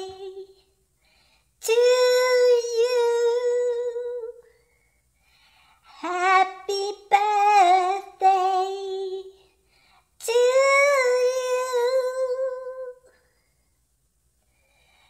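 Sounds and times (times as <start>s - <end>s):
high-pitched wordless singing: 0.0s - 0.7s, 1.6s - 4.5s, 6.0s - 9.4s, 10.2s - 13.1s.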